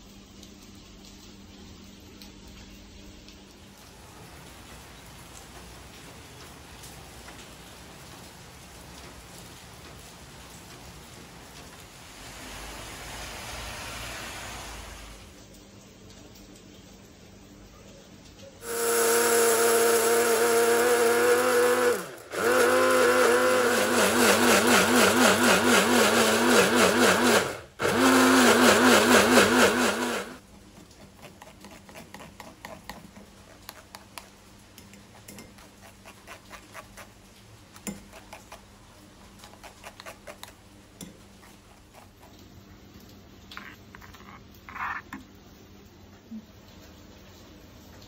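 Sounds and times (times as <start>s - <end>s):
electric blender grinding: 18.6s - 30.4s
spoon scraping metal sieve: 43.5s - 45.2s.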